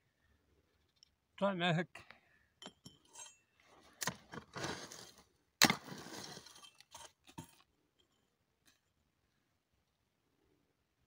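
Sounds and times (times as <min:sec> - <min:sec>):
hoe scraping earth: 0:03.2 - 0:07.6
loose soil sliding: 0:03.2 - 0:07.6
hoe striking earth: 0:03.9 - 0:07.6.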